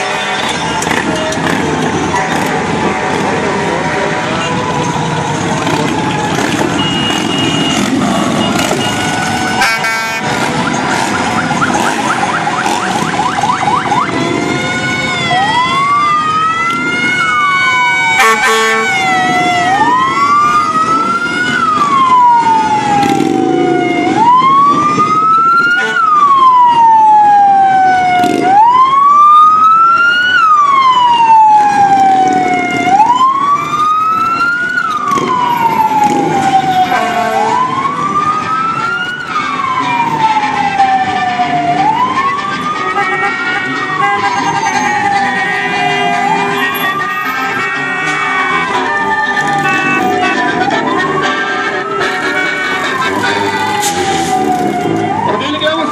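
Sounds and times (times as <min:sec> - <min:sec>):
passing motorcycles and cars: 0:00.0 - 0:55.9
siren wailing: 0:00.0 - 0:55.9
fast warbling siren tone: 0:06.0 - 0:14.3, 0:43.8 - 0:55.9.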